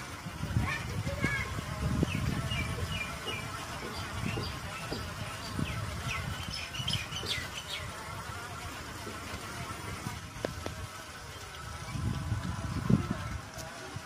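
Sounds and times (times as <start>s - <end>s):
birds chirping: 1.9s - 8.4s.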